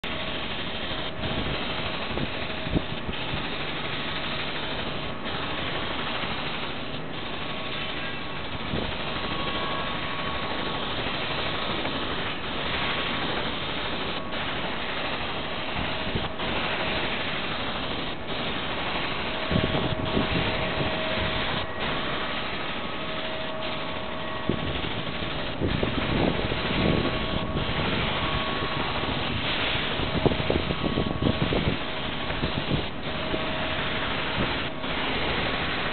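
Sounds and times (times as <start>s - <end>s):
faint held whine: 0.0s - 35.9s
machine hum and hiss: 0.0s - 35.9s.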